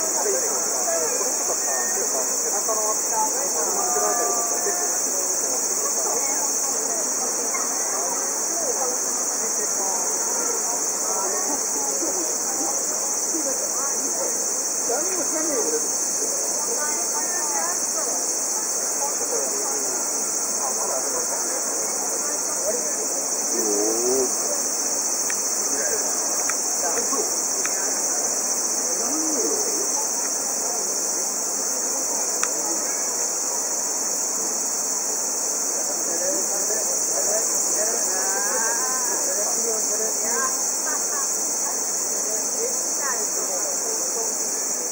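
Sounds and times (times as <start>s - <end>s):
insects shrilling: 10.8s - 44.9s.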